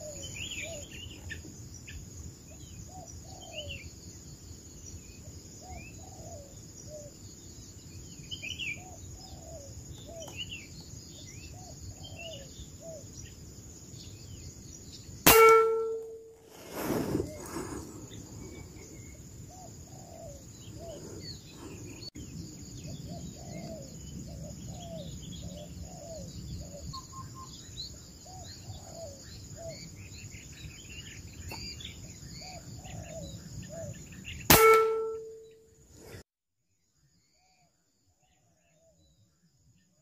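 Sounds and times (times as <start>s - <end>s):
insects droning: 0.0s - 36.2s
birds calling: 5.2s - 35.6s
air rifle shot: 15.3s - 17.4s, 34.5s - 35.4s.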